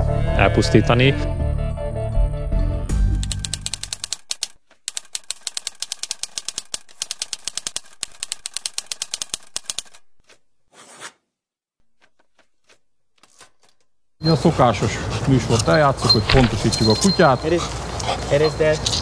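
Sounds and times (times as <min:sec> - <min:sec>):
typewriter keys clacking: 0:03.2 - 0:10.0, 0:16.1 - 0:17.3.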